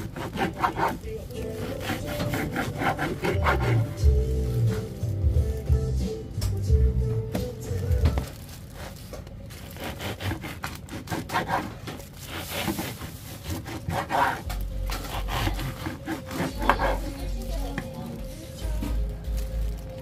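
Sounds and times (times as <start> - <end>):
bread knife sawing crusty roll: 0.0 - 4.9, 9.6 - 17.4.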